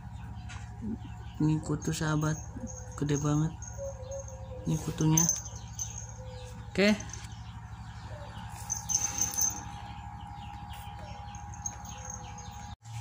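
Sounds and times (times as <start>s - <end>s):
small birds chirping: 0.0s - 13.0s
steady low hum: 0.0s - 13.0s.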